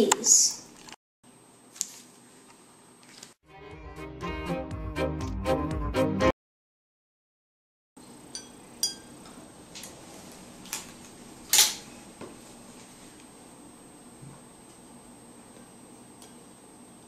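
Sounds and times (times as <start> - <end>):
glass ringing: 8.3 - 9.2
wooden sticks clinking on glasses: 8.3 - 9.4.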